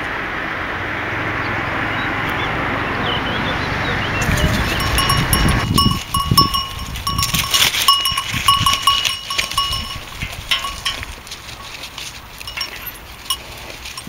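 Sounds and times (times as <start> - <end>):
road noise: 0.0 - 14.0
livestock bell clinking: 4.2 - 14.0
soft rustling: 5.8 - 14.0.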